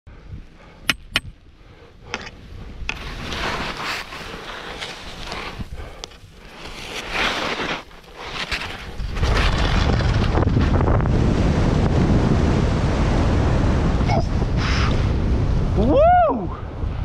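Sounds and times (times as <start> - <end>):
skis hissing through snow: 3.0 - 9.4.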